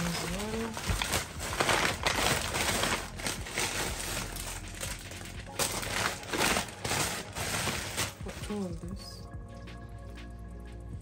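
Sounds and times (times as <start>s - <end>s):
plastic bag rustling: 0.0s - 9.2s
plastic packaging clicks and knocks: 0.1s - 8.7s.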